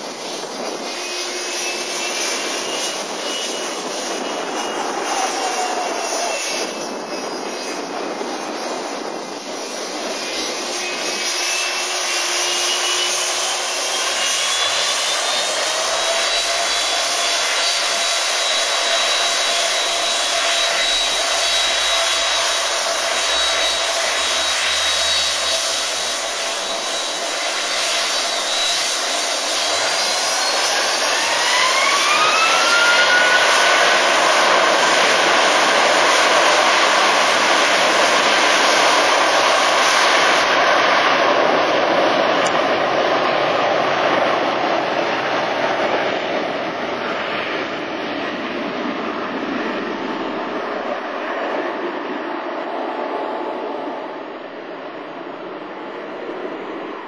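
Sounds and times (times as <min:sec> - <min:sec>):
jet engine roar: 0:00.0 - 0:57.0
jet engine whine: 0:00.0 - 0:57.0.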